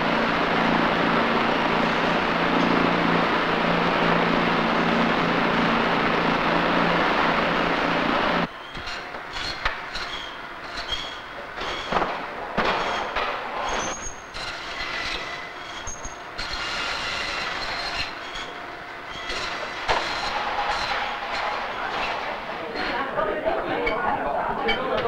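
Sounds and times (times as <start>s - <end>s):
high squeal: 8.5s - 12.0s, 12.8s - 21.8s.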